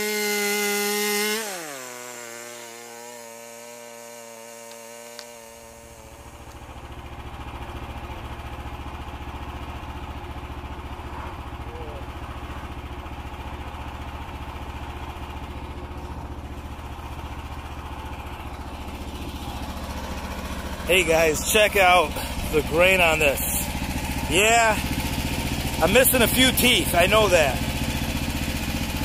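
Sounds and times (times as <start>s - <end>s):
small gasoline engine idling: 0.0s - 29.0s.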